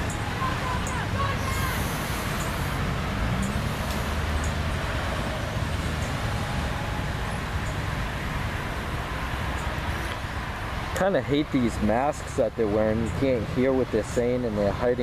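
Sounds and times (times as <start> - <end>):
road traffic rumble: 0.0 - 15.0.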